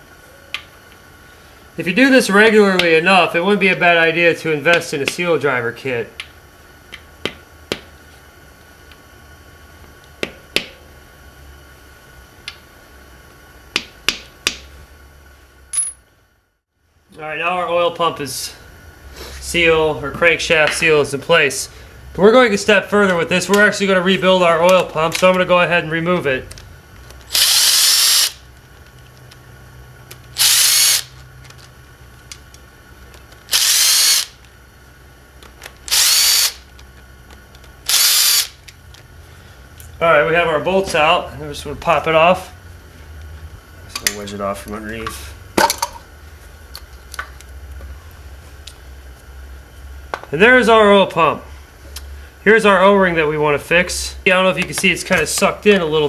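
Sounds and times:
power drill bursts: 0:27.3 - 0:28.4, 0:30.3 - 0:31.2, 0:33.5 - 0:34.4, 0:35.9 - 0:36.7, 0:37.8 - 0:38.6.

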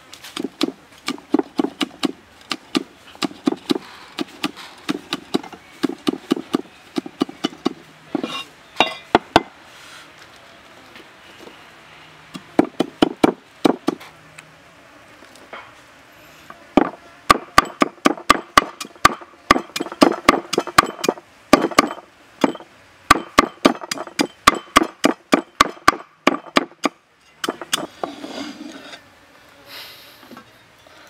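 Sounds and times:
cleaver chopping on wooden block: 0:12.4 - 0:14.0, 0:16.8 - 0:27.9
blade scraping across wooden block: 0:27.4 - 0:29.1.

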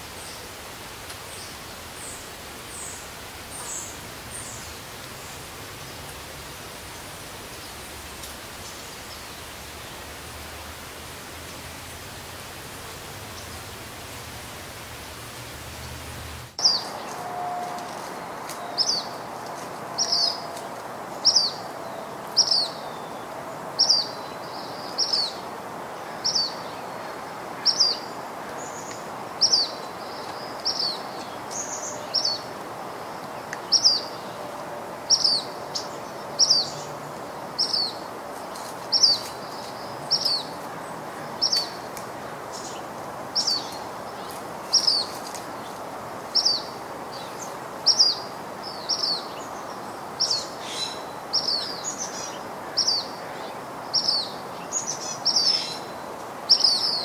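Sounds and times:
background hiss: 0:00.0 - 0:57.0
bird chirping: 0:16.6 - 0:19.2, 0:20.0 - 0:20.6.

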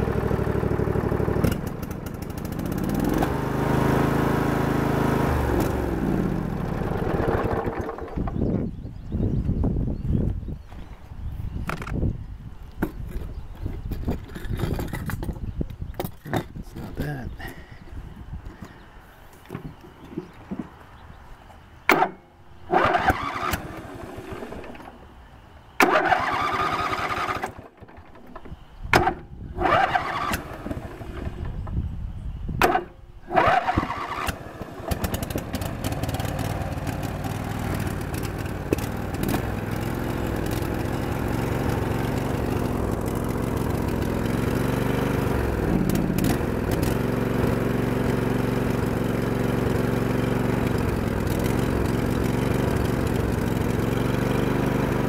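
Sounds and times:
lawn tractor engine running: 0:00.0 - 0:08.6, 0:22.7 - 0:25.1, 0:25.8 - 0:31.6, 0:32.6 - 0:55.0
electric starter cranking engine: 0:01.3 - 0:08.5, 0:22.7 - 0:25.0, 0:25.8 - 0:28.4, 0:29.0 - 0:31.6, 0:32.6 - 0:55.0.

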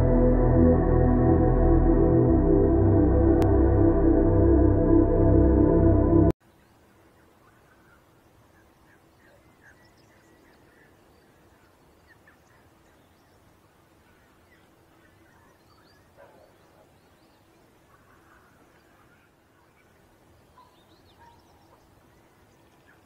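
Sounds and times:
low steady hum: 0:00.0 - 0:08.8
faint bird chirps: 0:06.4 - 0:23.0.

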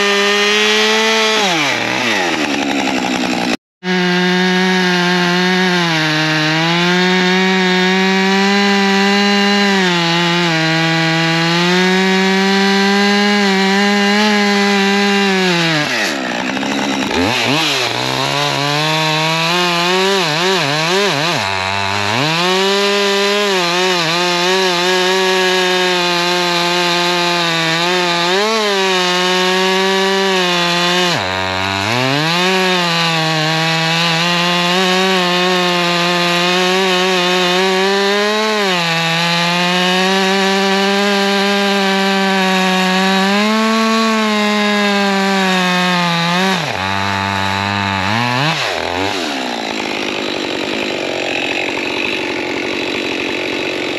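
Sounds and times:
chainsaw cutting wood: 0:00.0 - 0:53.9.

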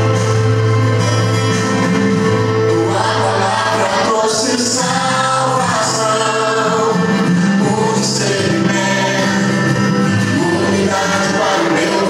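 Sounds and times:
instrumental backing track: 0:00.0 - 0:12.0
gospel singing: 0:02.4 - 0:12.0.

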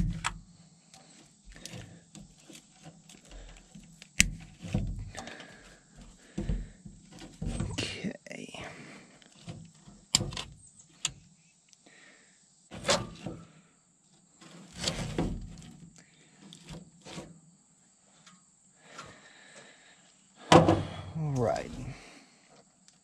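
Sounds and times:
wires and plastic rustling: 0:00.9 - 0:07.8.

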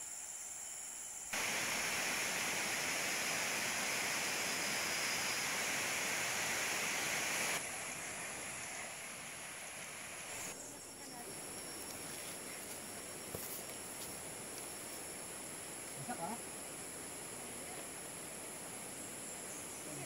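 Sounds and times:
flowing water rushing: 0:01.4 - 0:10.5.

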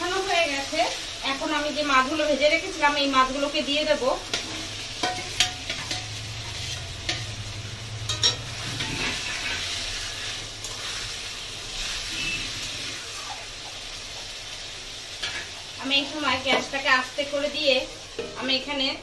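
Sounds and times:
fish sizzling in a pan: 0:00.0 - 0:19.0
spatula stirring in pan: 0:04.1 - 0:14.4
metal clinks against pan: 0:08.0 - 0:08.5.

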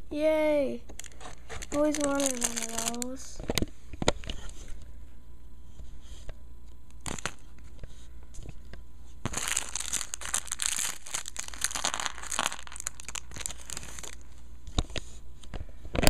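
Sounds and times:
plastic bag crinkling: 0:01.0 - 0:03.3, 0:07.0 - 0:07.5, 0:09.2 - 0:14.4.

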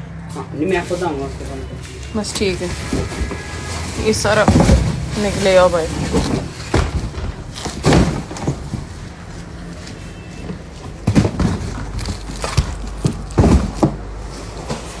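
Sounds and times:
cardboard boxes being handled: 0:02.3 - 0:15.0
dull thumps and knocks: 0:06.0 - 0:08.9.

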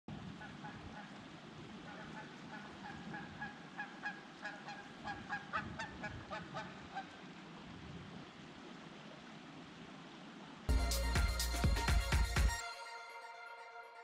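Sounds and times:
geese honking: 0:01.9 - 0:07.2.

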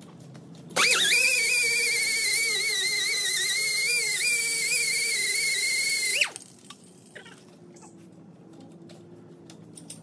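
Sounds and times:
air grinder whining on metal: 0:00.8 - 0:06.5.

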